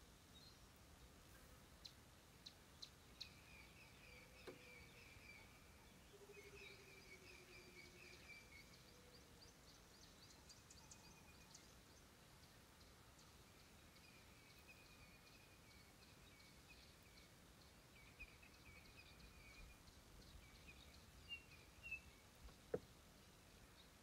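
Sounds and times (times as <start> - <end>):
distant birds calling: 1.3 - 11.5.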